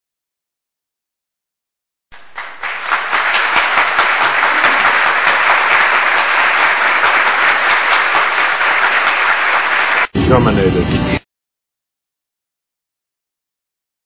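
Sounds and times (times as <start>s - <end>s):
crowd applauding: 2.2s - 10.7s.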